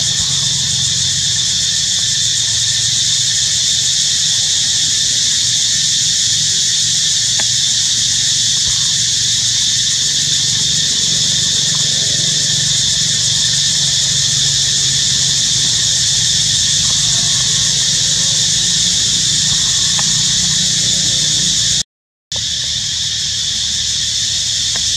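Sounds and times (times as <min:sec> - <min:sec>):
insect chorus: 0:00.0 - 0:24.9.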